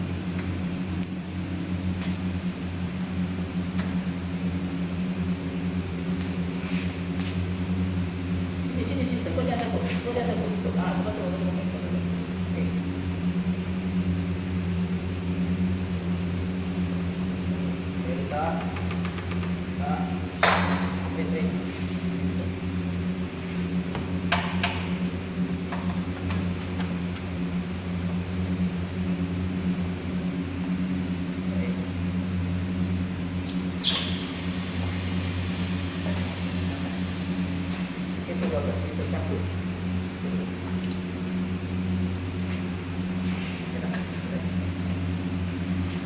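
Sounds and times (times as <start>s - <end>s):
electrical hum: 0.0s - 46.0s
machinery whirring: 33.3s - 40.7s.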